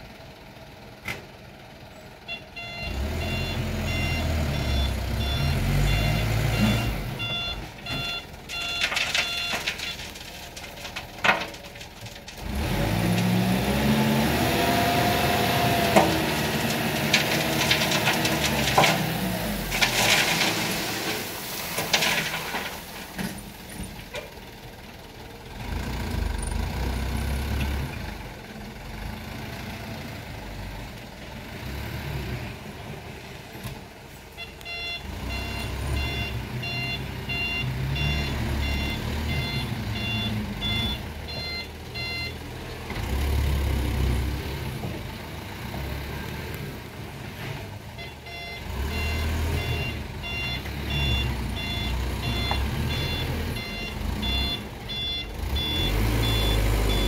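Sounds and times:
diesel truck engine rumbling: 0.0s - 57.0s
reversing alarm beeps: 2.3s - 9.6s, 34.4s - 42.4s, 48.0s - 57.0s.

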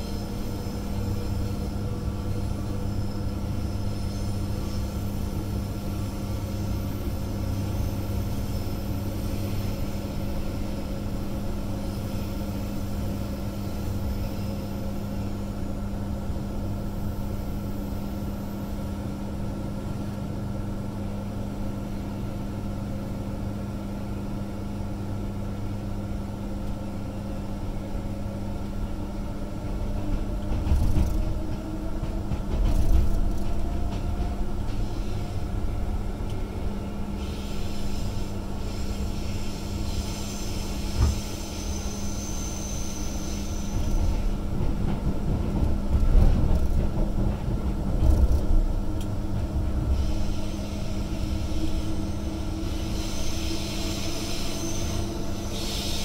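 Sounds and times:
train motor whine: 26.2s - 44.9s, 47.8s - 56.0s
wheels rumbling over track: 28.6s - 37.4s, 43.7s - 52.9s.

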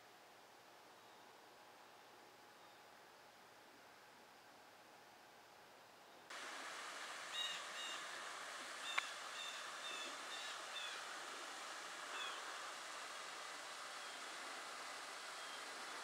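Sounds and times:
river water rushing through dam: 6.4s - 16.0s
bird calling: 7.3s - 12.8s, 15.1s - 16.0s.

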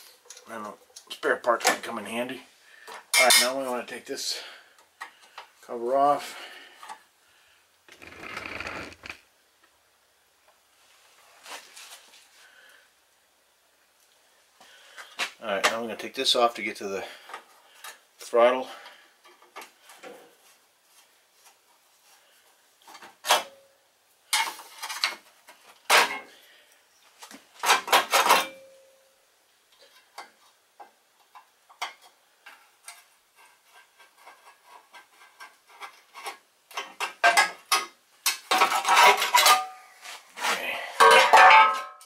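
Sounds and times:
metal clicks scrapes and rattles: 7.9s - 9.2s
screwdriver turning screws: 7.9s - 9.2s.

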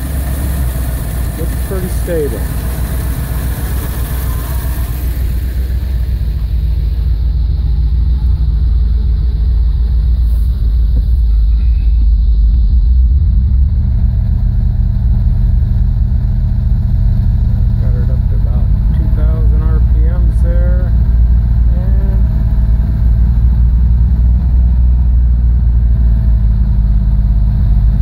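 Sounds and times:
vehicle engine running: 0.0s - 28.0s.

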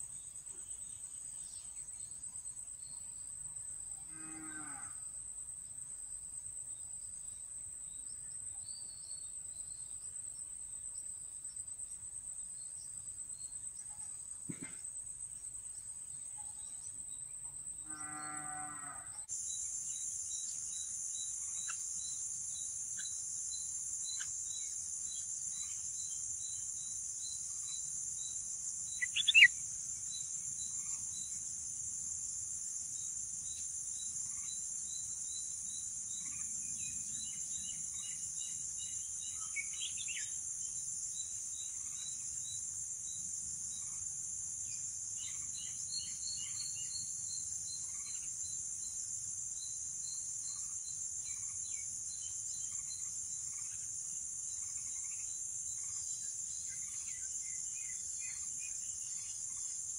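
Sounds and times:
low cow-like call: 4.1s - 5.0s, 17.8s - 19.2s
high-pitched insect drone: 17.9s - 32.2s
sharp bird chirps: 28.9s - 29.6s.

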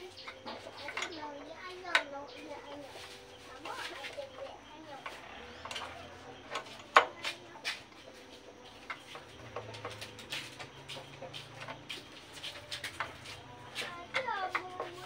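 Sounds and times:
metal tools clicking and clinking: 0.0s - 2.1s, 5.0s - 7.4s.

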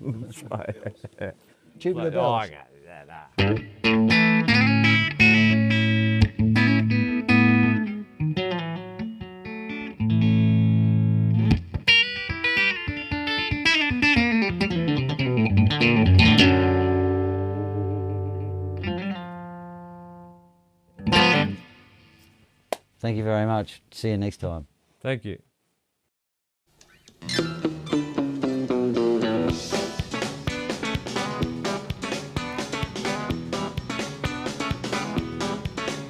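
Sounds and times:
electric guitar playing: 3.4s - 22.3s, 26.9s - 36.0s.

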